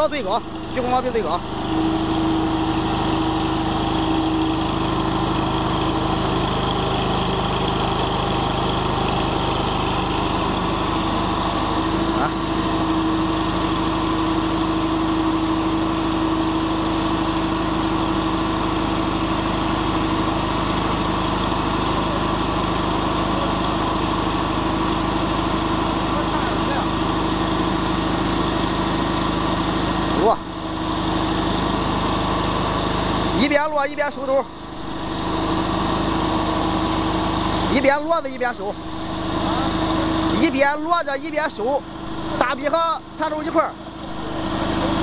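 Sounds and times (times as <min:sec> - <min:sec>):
loader engine running: 0:00.0 - 0:45.0
hydraulics raising loader arms: 0:33.4 - 0:45.0.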